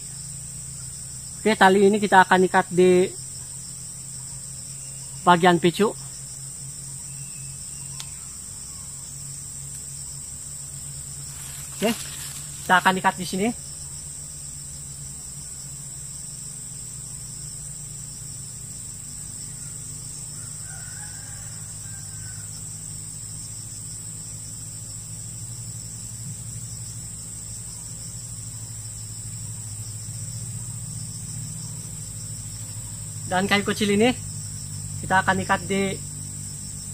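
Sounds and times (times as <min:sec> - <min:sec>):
insect chorus drone: 0:00.0 - 0:36.9
distant rooster crow: 0:19.6 - 0:22.9.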